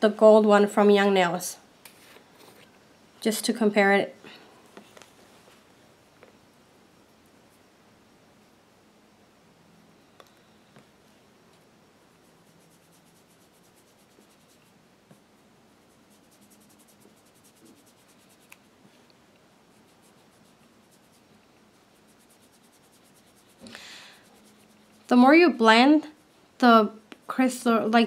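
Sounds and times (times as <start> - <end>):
sponge applicator rubbing on nail: 12.1 - 18.7, 19.6 - 25.3.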